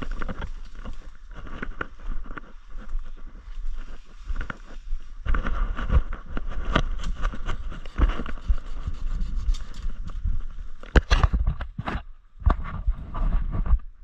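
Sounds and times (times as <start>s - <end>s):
footsteps crunching dry leaves: 0.0s - 10.9s
twig and leaf crackles: 0.0s - 11.9s
brushing through undergrowth: 0.0s - 13.6s
low rumble on microphone: 0.0s - 14.0s.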